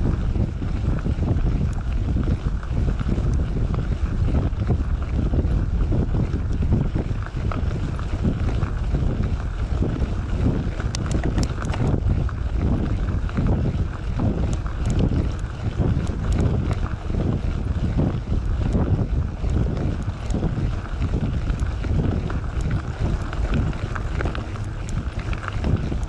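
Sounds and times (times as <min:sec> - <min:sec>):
bike tyre rolling on gravel: 0:00.0 - 0:26.0
wind buffeting microphone: 0:00.0 - 0:26.0
sharp clicks: 0:10.9 - 0:12.0, 0:14.5 - 0:15.4, 0:16.0 - 0:16.8.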